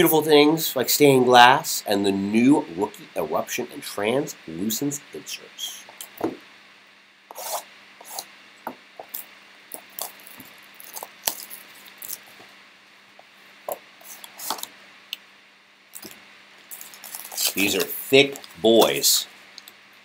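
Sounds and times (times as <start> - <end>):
plastic wrap crinkling: 9.1 - 12.4, 15.9 - 19.7.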